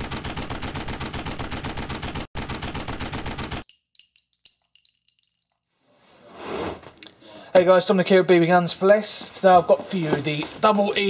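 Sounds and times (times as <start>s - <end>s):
machine-gun fire: 0.0s - 3.6s
faint metallic clinks: 3.6s - 6.1s.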